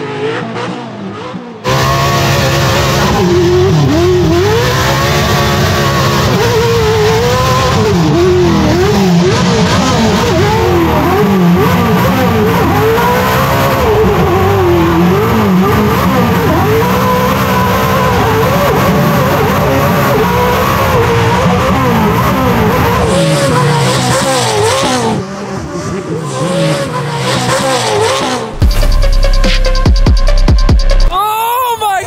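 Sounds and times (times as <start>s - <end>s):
race engine at full throttle: 0.0s - 31.1s
music with heavy bass beat: 27.2s - 31.2s.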